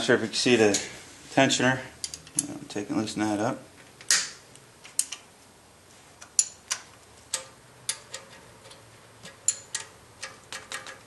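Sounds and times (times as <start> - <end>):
wrench clicking: 4.1 - 5.3, 6.2 - 11.0.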